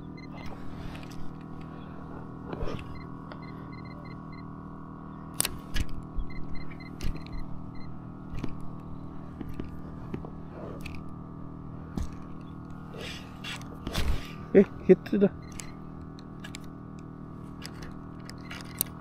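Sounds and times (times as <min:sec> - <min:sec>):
steady hum: 0:00.0 - 0:19.0
gear clicking and knocking: 0:15.4 - 0:19.0.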